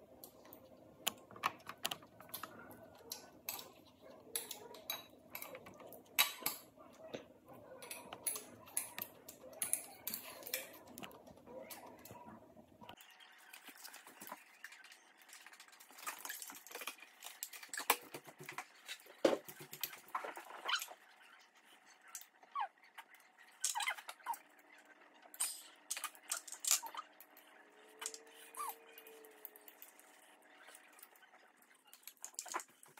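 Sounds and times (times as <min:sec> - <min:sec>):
chopsticks clicking on bowls: 0:00.2 - 0:12.2.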